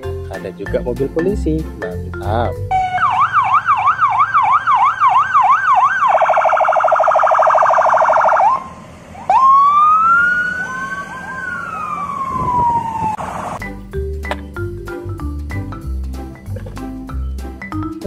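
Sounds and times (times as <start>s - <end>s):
police siren: 2.7s - 13.6s.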